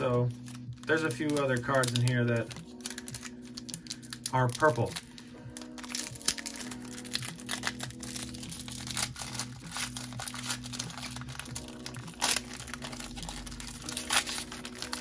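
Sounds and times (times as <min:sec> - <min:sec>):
background music: 0:00.0 - 0:15.0
foil wrapper crinkling and tearing: 0:00.0 - 0:15.0.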